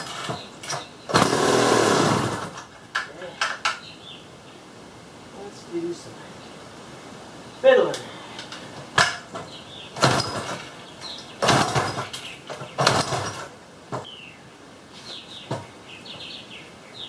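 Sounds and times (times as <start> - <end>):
engine turning over on pull-start: 1.1 - 2.6.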